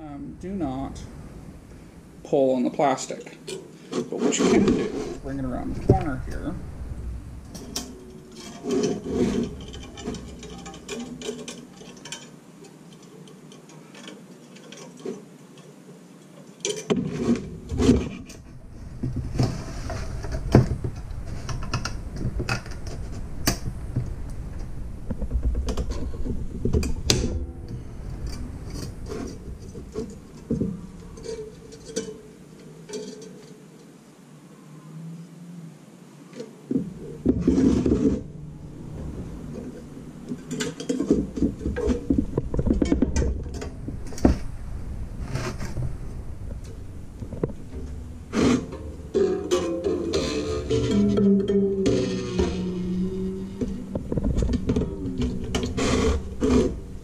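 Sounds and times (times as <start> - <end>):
metal grid clicking and knocking: 7.5 - 15.7.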